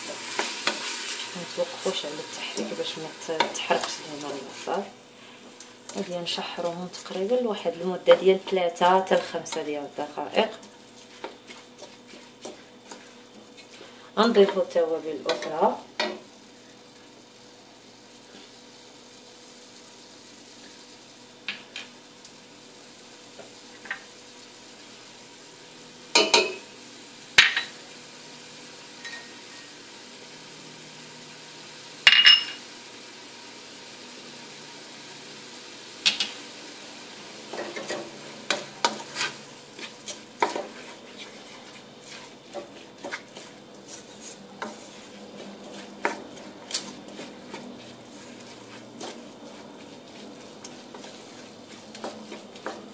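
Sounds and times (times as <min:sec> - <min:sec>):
wooden spoon stirring: 0:00.0 - 0:15.8, 0:37.4 - 0:52.9
onions sizzling in oil: 0:00.0 - 0:52.9.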